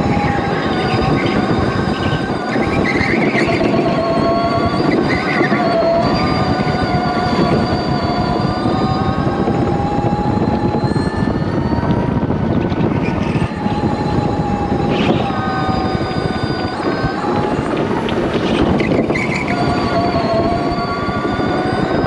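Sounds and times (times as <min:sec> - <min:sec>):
electric motor whine: 0:00.0 - 0:22.0.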